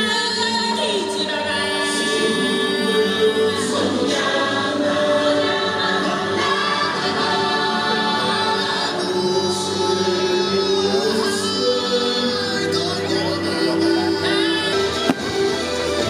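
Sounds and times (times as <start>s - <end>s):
choir singing long held chords: 0.0s - 14.5s.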